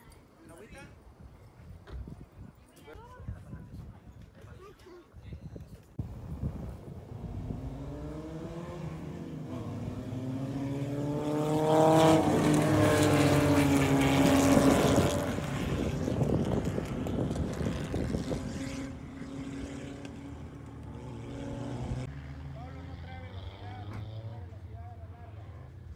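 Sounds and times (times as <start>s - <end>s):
race cars passing at speed: 6.0s - 25.9s.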